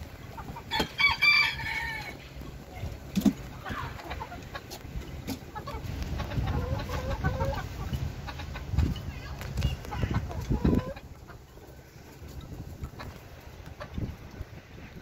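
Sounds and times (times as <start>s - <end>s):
chickens clucking: 0.0s - 15.0s
rooster crowing: 0.7s - 2.2s.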